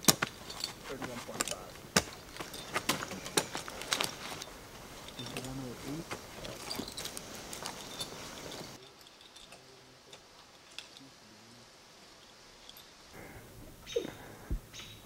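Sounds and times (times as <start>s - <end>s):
boots and gear knocking on tree: 0.0s - 4.2s.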